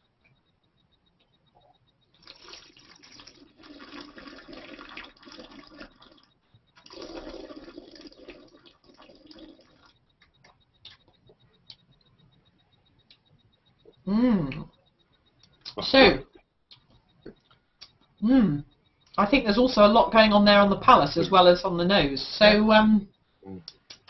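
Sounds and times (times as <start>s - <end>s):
wine being slurped: 2.2s - 9.9s.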